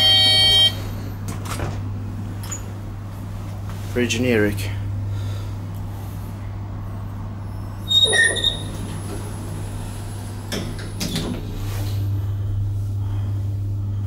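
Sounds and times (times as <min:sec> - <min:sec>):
short electronic beep: 0:00.0 - 0:00.8
elevator hum: 0:00.0 - 0:14.0
elevator doors sliding shut: 0:07.5 - 0:12.2.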